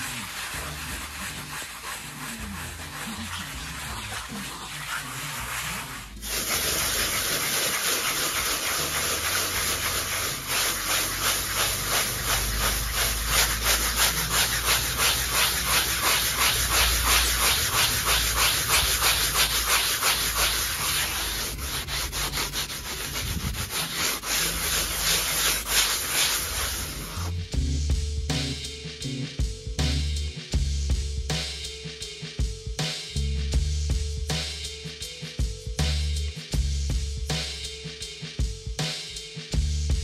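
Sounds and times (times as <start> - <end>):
foam block scraping on render: 0.0 - 27.4.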